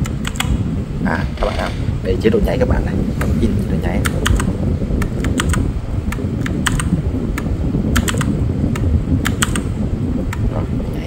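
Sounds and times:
low rumble: 0.0 - 11.0
mechanical keyboard key clicks: 8.0 - 8.3, 9.2 - 9.7.

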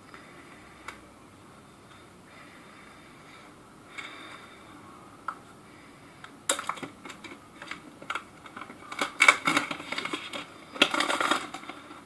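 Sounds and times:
plastic film crinkling: 6.5 - 12.0.

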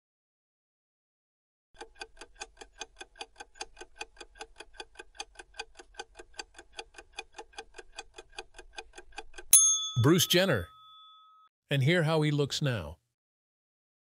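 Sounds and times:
clock ticking: 1.8 - 10.6.

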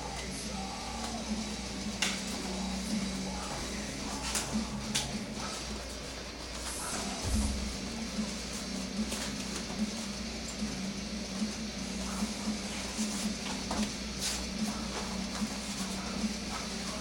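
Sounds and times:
bare feet thudding on foam mats: 6.5 - 10.2, 11.3 - 17.0.

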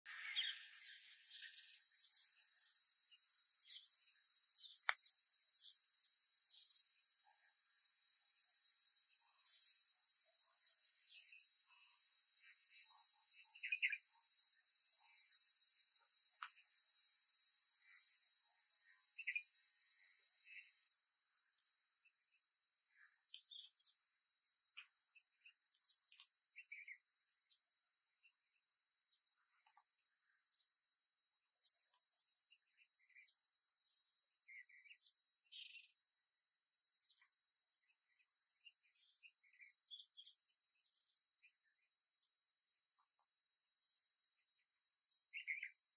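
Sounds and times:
high-pitched insect drone: 0.1 - 6.9.

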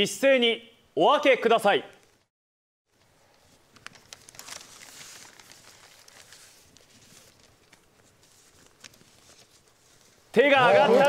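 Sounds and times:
paper rustling and crinkling: 3.0 - 10.4.

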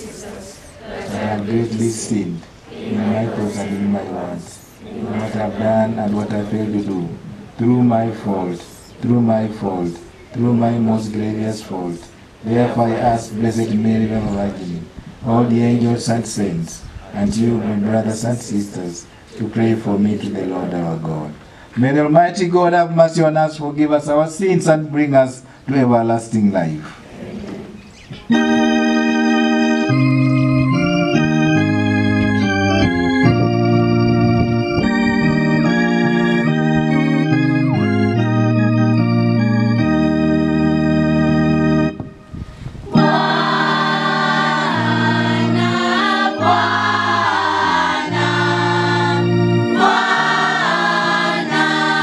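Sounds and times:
choir singing a hymn: 0.0 - 21.0, 27.0 - 52.0
organ chords: 5.0 - 16.4, 27.7 - 52.0.

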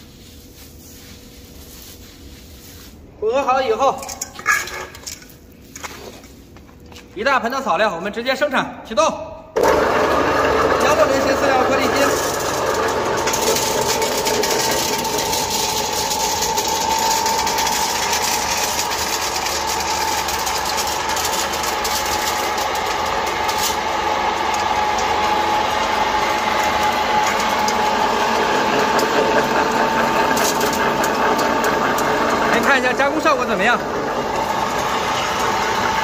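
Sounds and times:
electric pellet mill running: 9.6 - 36.0.

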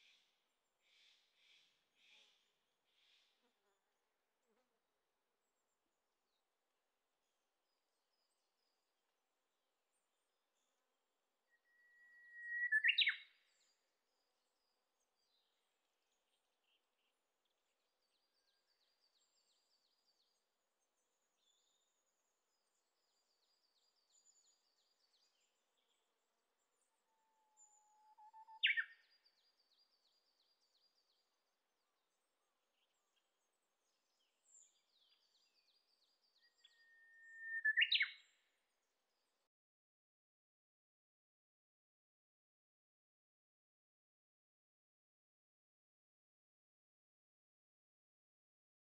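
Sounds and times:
bush warbler whistling song: 11.5 - 13.8, 27.6 - 30.9, 34.4 - 38.4
faint high bird trills: 11.7 - 13.3, 27.5 - 29.0.

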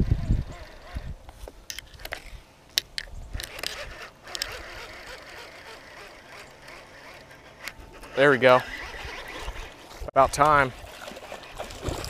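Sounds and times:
fishing reel clicks: 2.9 - 9.7.

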